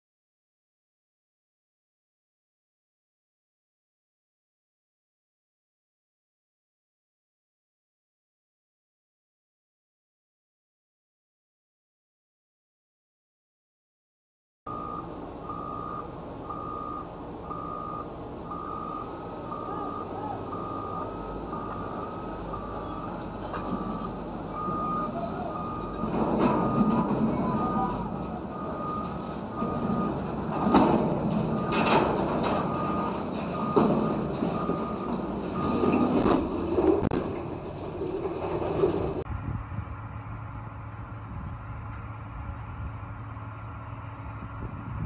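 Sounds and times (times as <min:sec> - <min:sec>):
backup alarm beeping: 0:14.7 - 0:36.3
loud rumbling: 0:14.7 - 0:45.0
sharp metal bangs: 0:15.5 - 0:37.9.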